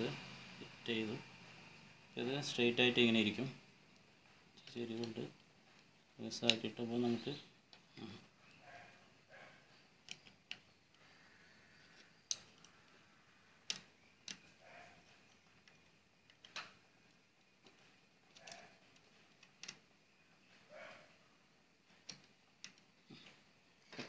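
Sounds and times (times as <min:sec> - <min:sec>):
small metal parts clicking: 0:09.9 - 0:11.0, 0:11.9 - 0:13.0, 0:13.6 - 0:19.9.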